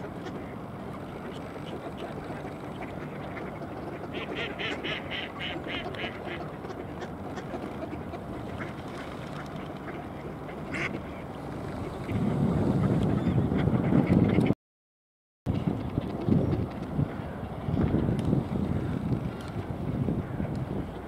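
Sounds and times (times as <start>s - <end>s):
ducks quacking: 0.0s - 14.6s.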